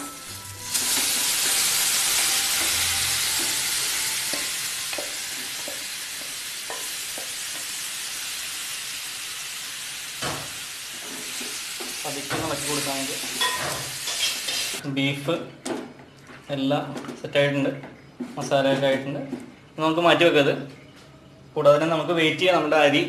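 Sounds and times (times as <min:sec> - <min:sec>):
meat sizzling in a pan: 0:00.0 - 0:14.8.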